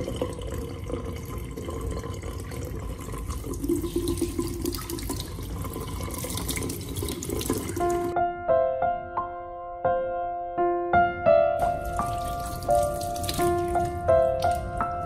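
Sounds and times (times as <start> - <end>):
faucet water splashing into sink: 0.0 - 8.2, 11.6 - 15.0.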